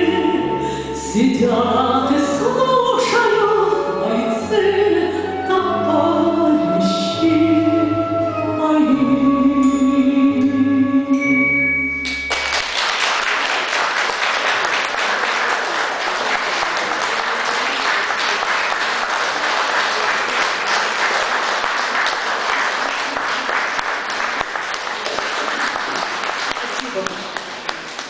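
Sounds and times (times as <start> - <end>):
audience applauding: 12.0 - 28.0.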